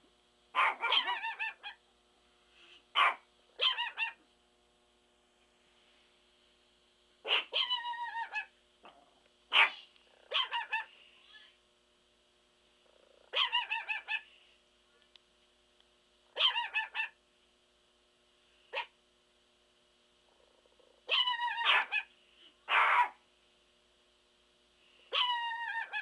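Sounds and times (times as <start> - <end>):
small dog yapping: 0.5 - 1.8, 3.0 - 4.2, 7.2 - 8.5, 9.5 - 10.9, 13.3 - 14.3, 16.4 - 17.2, 18.7 - 18.9, 21.1 - 22.1, 22.7 - 23.2, 25.1 - 26.0.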